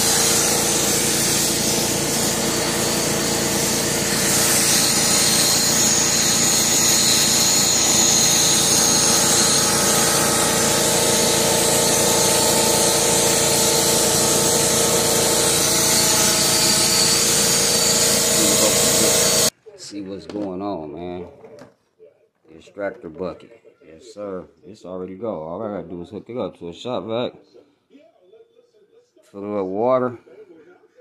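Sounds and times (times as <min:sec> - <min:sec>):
shop vac motor whining: 0:00.0 - 0:19.5.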